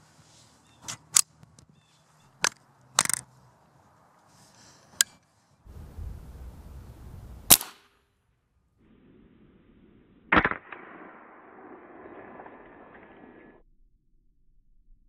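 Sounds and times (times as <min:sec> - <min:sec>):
scope turret clicks: 0:02.4 - 0:03.3
low steady rumble: 0:05.7 - 0:07.5.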